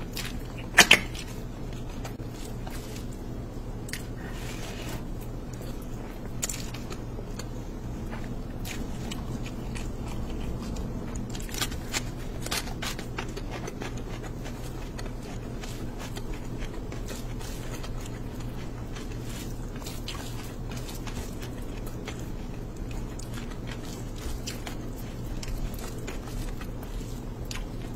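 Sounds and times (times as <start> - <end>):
hand squelching rice and gravy: 0.0 - 7.0, 13.7 - 27.9
steady low hum: 0.0 - 27.9.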